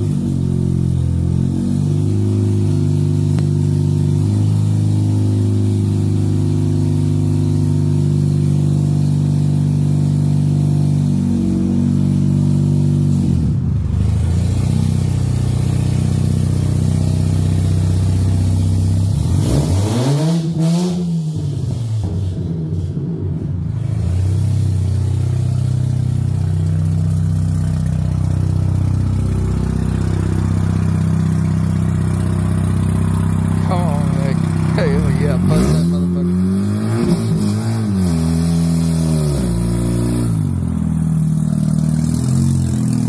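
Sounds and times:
rotary engine idling: 26.4s - 36.2s.

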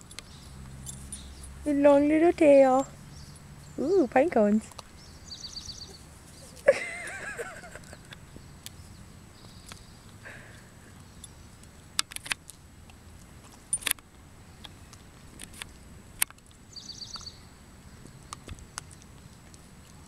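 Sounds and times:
puppy chewing pine cone: 7.8s - 20.0s.

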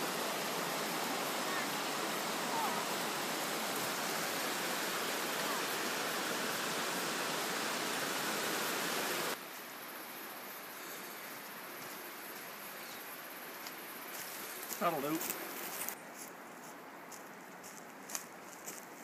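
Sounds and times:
falling water rushing: 0.0s - 9.4s.

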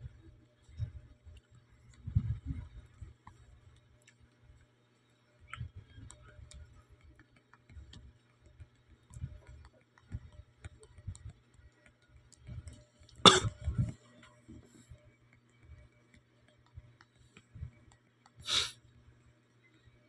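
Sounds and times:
person coughing: 13.3s - 13.6s.

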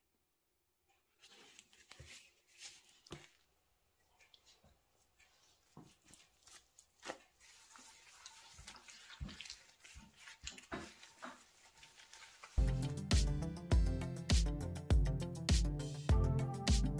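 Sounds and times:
cloth rubbing on metal: 5.2s - 13.1s.

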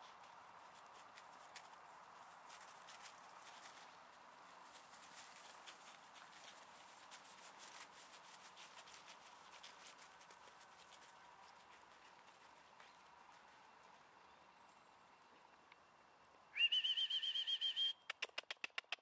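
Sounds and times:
dog paws running on grass: 0.0s - 14.5s.

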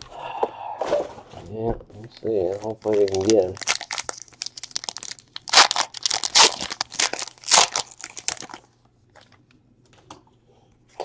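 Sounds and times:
wrapper tearing and crinkling: 2.5s - 8.7s.

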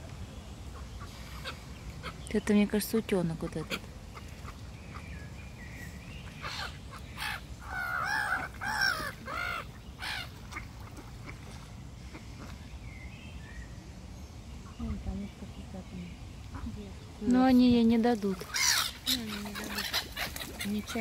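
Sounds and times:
gulls giving harsh calls: 6.2s - 11.4s, 18.3s - 21.0s.

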